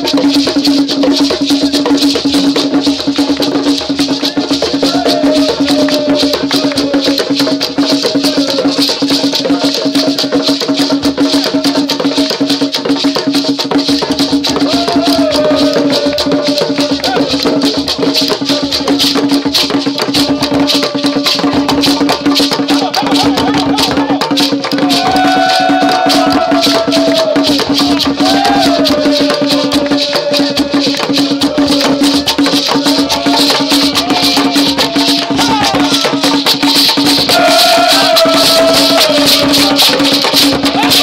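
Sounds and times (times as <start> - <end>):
drums in a fast rhythm: 0.0 - 41.0
shakers rattling: 0.0 - 41.0
wavering voices: 4.3 - 10.1, 14.5 - 19.2, 19.8 - 41.0.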